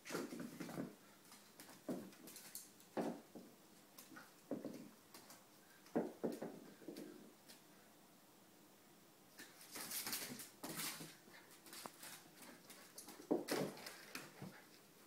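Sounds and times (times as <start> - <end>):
toys rustling: 9.4 - 15.0.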